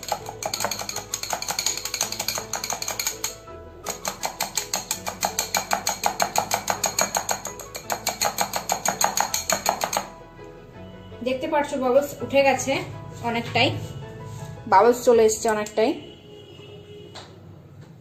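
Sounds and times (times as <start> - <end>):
whisk clicking against glass bowl: 0.0 - 10.1.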